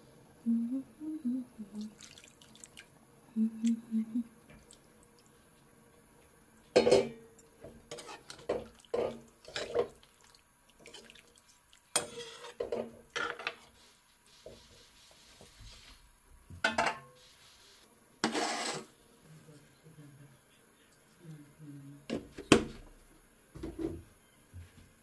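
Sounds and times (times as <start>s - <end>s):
metal ladle scraping metal pan: 7.9s - 9.8s, 11.9s - 13.5s, 18.2s - 18.9s.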